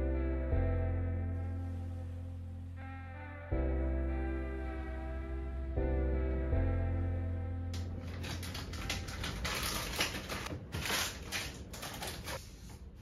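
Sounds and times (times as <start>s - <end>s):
background music: 0.0s - 10.5s
rustling and clicks of handled items: 7.8s - 12.9s.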